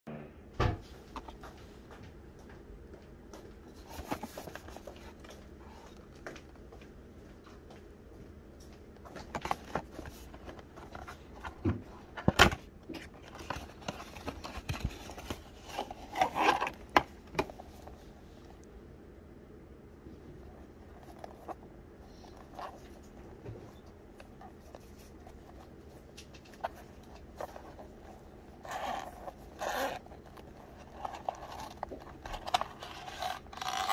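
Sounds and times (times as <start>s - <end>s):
cardboard and packaging rustling: 3.4s - 6.6s, 8.7s - 18.5s, 20.2s - 33.9s.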